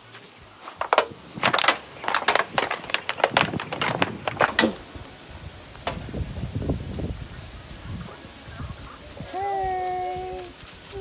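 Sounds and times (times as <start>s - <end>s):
sharp crunches and knocks: 0.6s - 6.4s.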